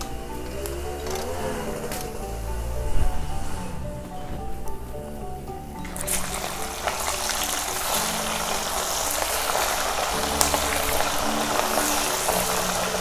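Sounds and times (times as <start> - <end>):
background music: 0.0 - 13.0
oil sizzling in a wok: 5.9 - 13.0.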